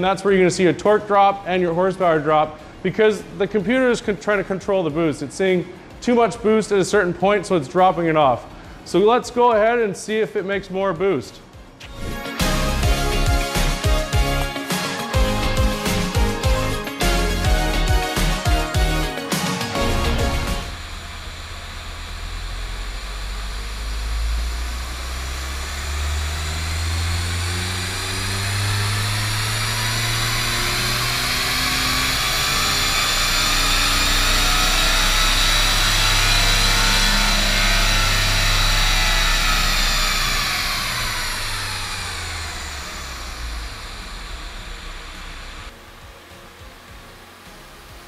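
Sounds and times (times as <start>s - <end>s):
high turbo whine: 11.4s - 48.0s
diesel engine revving on dyno: 19.8s - 45.8s.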